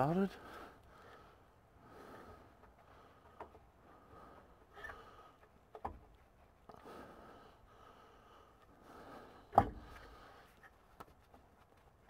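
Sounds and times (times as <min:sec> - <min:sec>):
person breathing: 0:00.4 - 0:05.5, 0:06.7 - 0:10.7.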